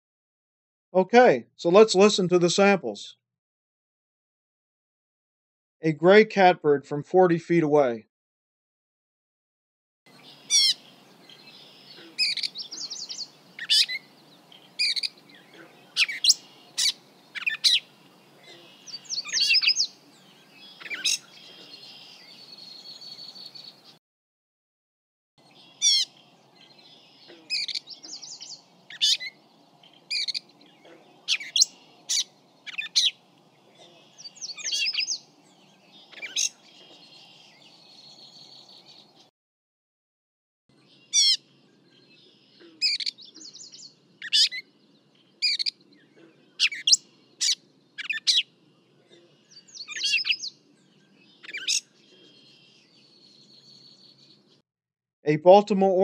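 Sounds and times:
bird singing varied chirps: 0:10.1 - 0:24.0, 0:25.4 - 0:39.3, 0:40.7 - 0:54.6.

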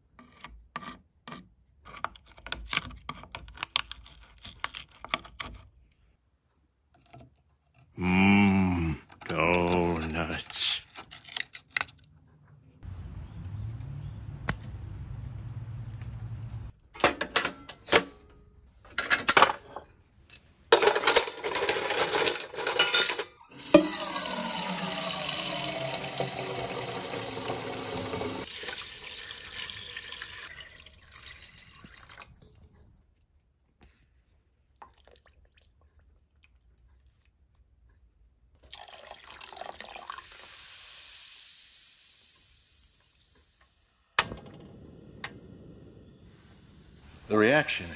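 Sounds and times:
metal clatter: 0:20.7 - 0:24.0
tap water running into tin can: 0:23.5 - 0:32.6, 0:38.6 - 0:43.8
soft hiss: 0:40.5 - 0:47.9.

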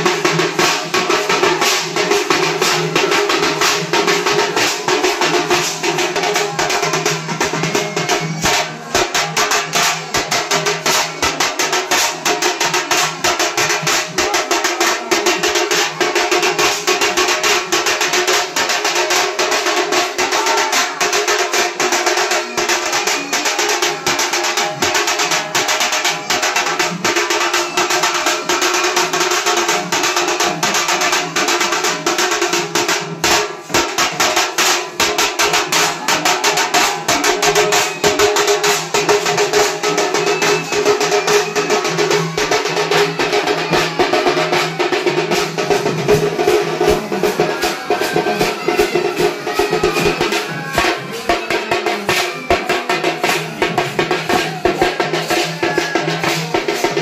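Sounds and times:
fast steady drumming: 0:00.0 - 0:57.0.

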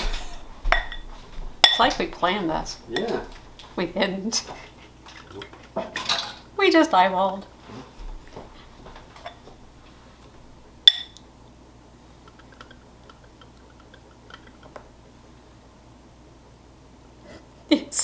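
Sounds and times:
metal spoon clinking on bowl: 0:01.6 - 0:02.0, 0:10.9 - 0:11.2.

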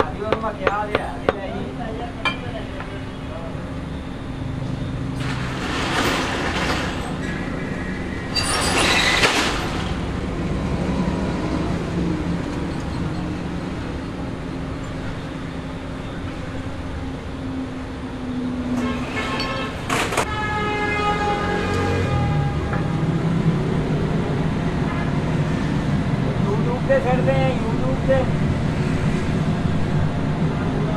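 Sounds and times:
traffic noise: 0:00.0 - 0:30.9.

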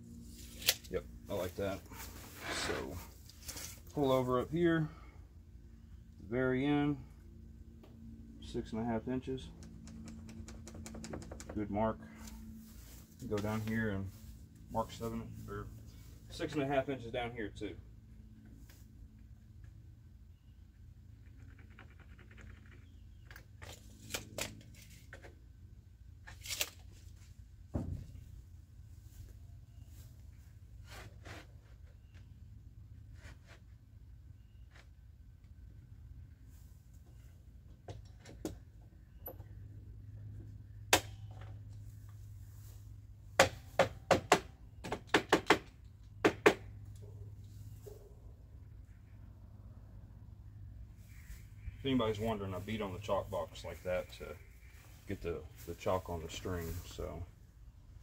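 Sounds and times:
dull thump: 0:27.7 - 0:28.2
sharp knocks on wood: 0:43.4 - 0:46.6.

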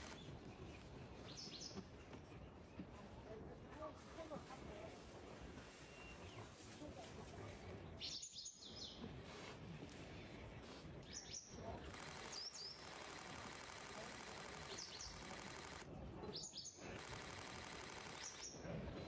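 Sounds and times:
birds chirping: 0:00.0 - 0:03.6, 0:07.7 - 0:19.0
background noise: 0:00.0 - 0:19.0.

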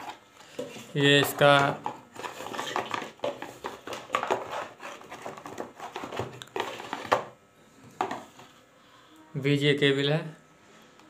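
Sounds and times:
cables rustling in cardboard box: 0:00.0 - 0:07.3.

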